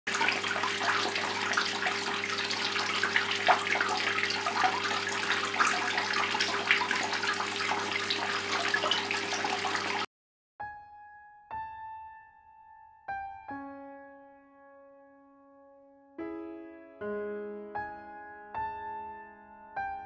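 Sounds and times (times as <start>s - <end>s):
fountain water splashing into basin: 0.1s - 10.1s.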